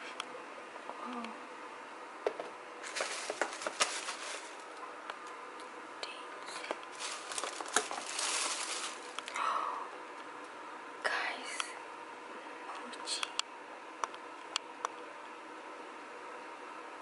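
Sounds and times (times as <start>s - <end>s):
plastic bag crinkling: 2.8s - 4.8s, 6.6s - 9.4s.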